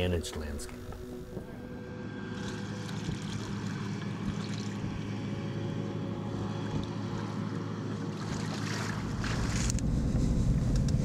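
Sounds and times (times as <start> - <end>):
steady low hum: 0.0 - 11.0
water splashing from wading: 2.3 - 5.4, 6.4 - 9.8.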